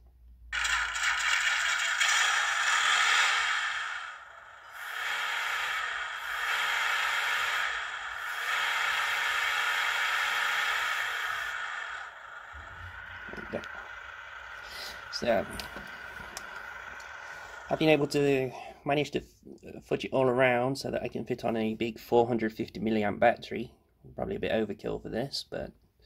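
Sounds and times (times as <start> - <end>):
thin hissy simulated engine sound: 0.6 - 18.7.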